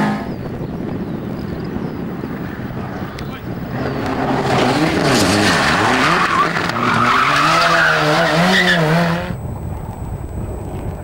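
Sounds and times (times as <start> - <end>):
car engine revving hard: 3.7 - 9.4.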